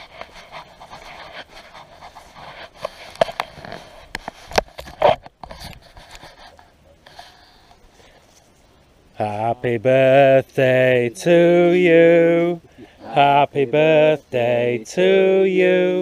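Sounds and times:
camera handling rubbing and scraping: 0.0 - 7.4.

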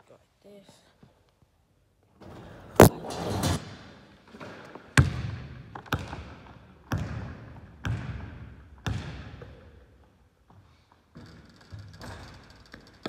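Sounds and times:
basketball bouncing on hardwood: 6.9 - 9.2.

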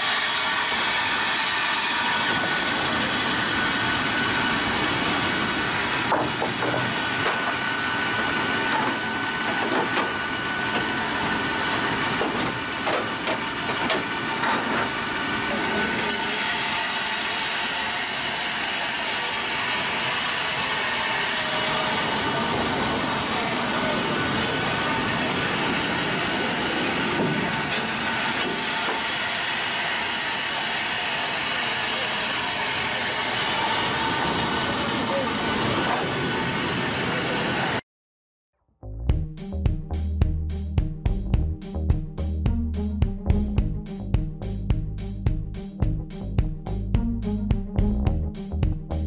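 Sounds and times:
sawmill machinery whirring: 0.0 - 37.8.

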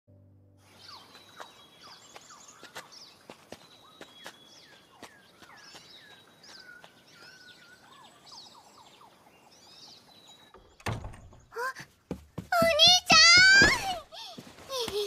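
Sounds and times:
bird chirps and calls: 0.7 - 10.8.

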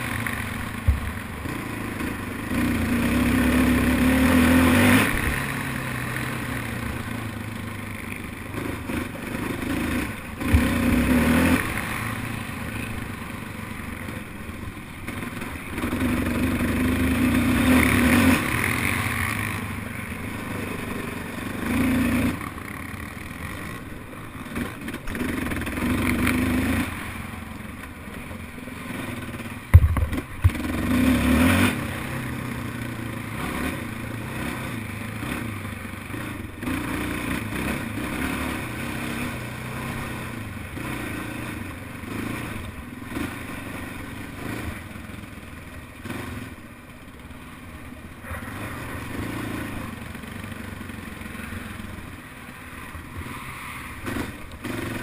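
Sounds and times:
quad engine revving: 0.0 - 14.4, 15.0 - 27.6, 28.8 - 45.3, 45.9 - 46.6, 48.0 - 55.0
sharp knocks: 29.7 - 30.6.

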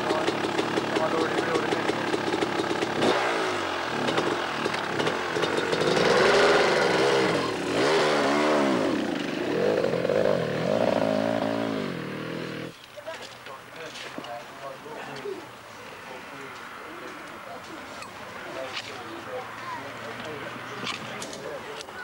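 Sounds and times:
motorcycle engine revving: 0.0 - 12.8.

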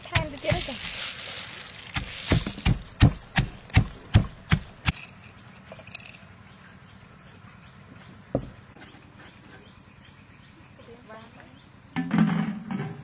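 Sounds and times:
pestle pounding in stone mortar: 0.0 - 0.9, 1.8 - 5.0.

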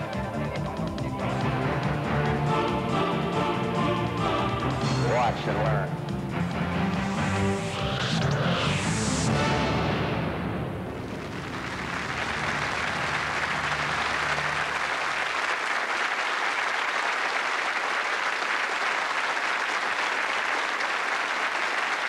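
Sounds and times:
low theme music notes: 0.0 - 14.8
audience applauding: 11.0 - 22.0.

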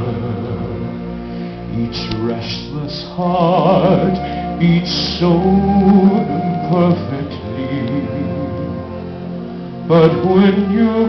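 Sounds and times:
man singing with vibrato: 1.7 - 9.0, 9.9 - 11.0.

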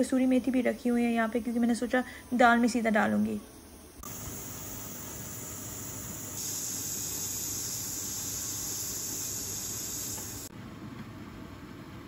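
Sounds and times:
pressure cooker steam hissing: 4.0 - 10.5.

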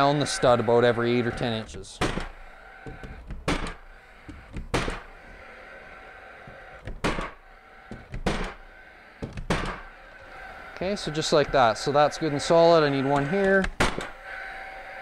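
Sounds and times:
nail gun firing: 7.0 - 7.4, 8.2 - 8.6, 13.8 - 14.1.

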